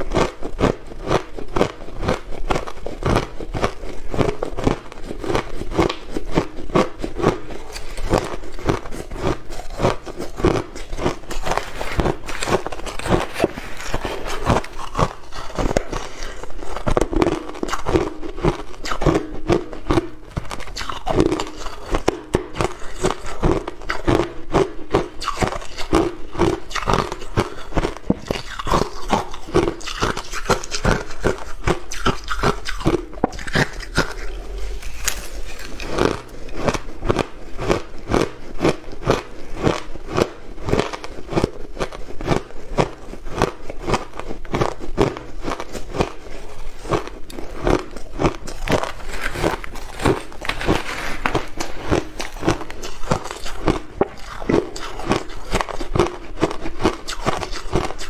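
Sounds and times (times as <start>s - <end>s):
shaved ice being chewed: 0.0s - 58.0s
metal spoon scraping ice: 26.8s - 37.0s.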